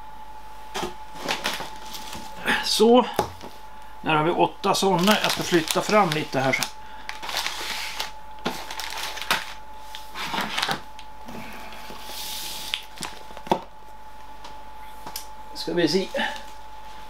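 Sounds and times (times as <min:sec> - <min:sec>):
packaging rustling: 0:01.1 - 0:02.4, 0:04.7 - 0:11.1, 0:11.9 - 0:13.6.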